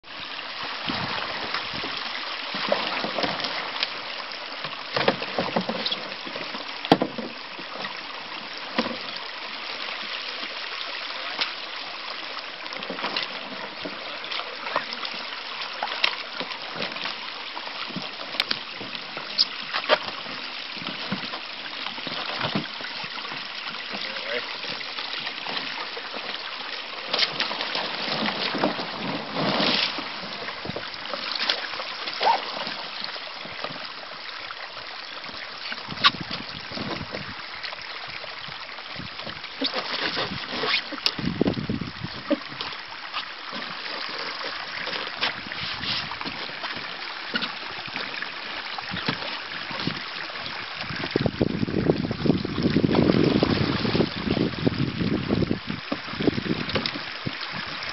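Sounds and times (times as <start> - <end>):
water splashing around canoe: 0.0 - 57.9
knocks against canoe hull: 6.9 - 7.4
wind on microphone: 35.8 - 37.5, 41.2 - 42.6, 49.8 - 57.9.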